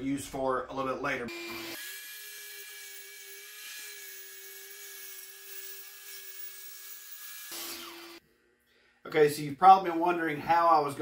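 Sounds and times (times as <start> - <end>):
circular saw cutting plywood: 1.3 - 8.2.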